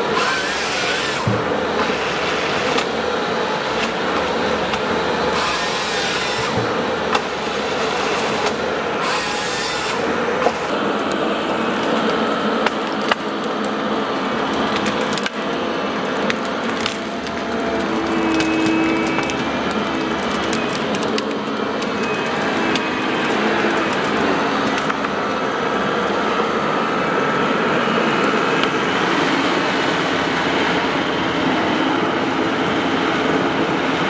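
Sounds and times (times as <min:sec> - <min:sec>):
wood cracking and sawing: 0:00.0 - 0:31.0
diesel engine running: 0:00.0 - 0:34.0
hydraulic hiss: 0:05.3 - 0:06.8.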